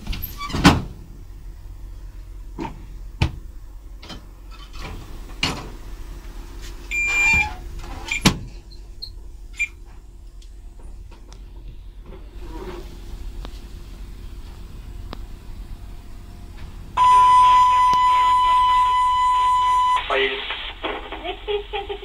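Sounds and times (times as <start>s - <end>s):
locomotive cab hum: 0.0s - 22.0s
high-pitched beep: 17.0s - 20.1s.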